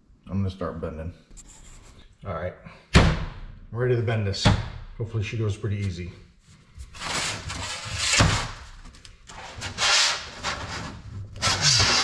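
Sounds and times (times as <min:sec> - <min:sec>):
aluminium sheet rattling and scraping: 0:07.0 - 0:12.0.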